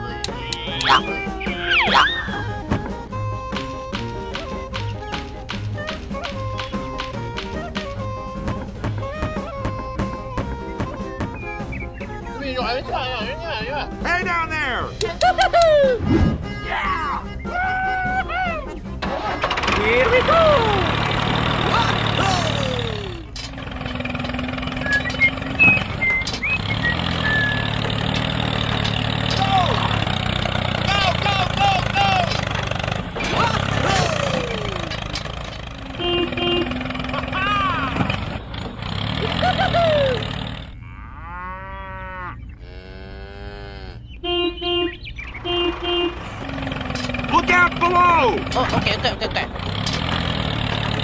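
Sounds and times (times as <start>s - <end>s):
tractor engine running: 0.0s - 40.9s, 44.0s - 51.0s
long mooing calls: 39.0s - 46.9s.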